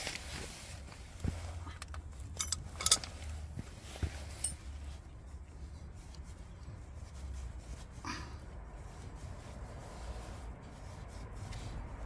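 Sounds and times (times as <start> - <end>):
low steady rumble: 0.0 - 12.0
clinks of hand tools and metal parts: 1.8 - 3.4, 4.0 - 4.8.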